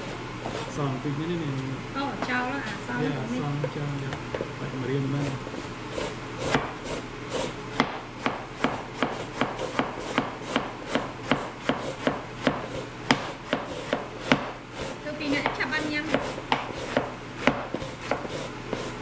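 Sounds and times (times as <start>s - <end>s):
knife slicing on plastic board: 6.0s - 15.0s, 16.1s - 19.0s.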